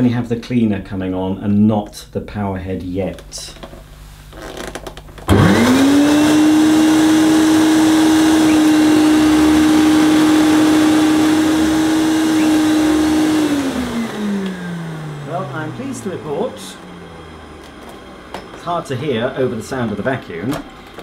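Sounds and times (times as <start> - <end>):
vacuum cleaner motor running: 5.3 - 21.0
vacuum cleaner switch clicks: 14.4 - 14.6.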